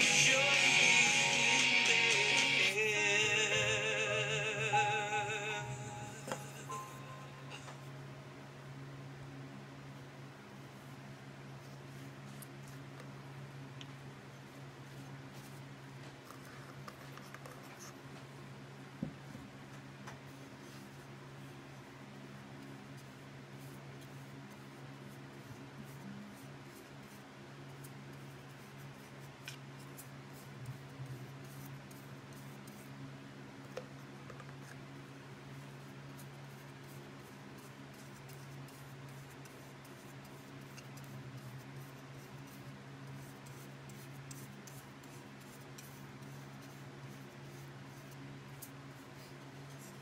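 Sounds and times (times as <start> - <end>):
steady low hum: 0.0 - 50.0
brush scratching on wood: 35.5 - 50.0.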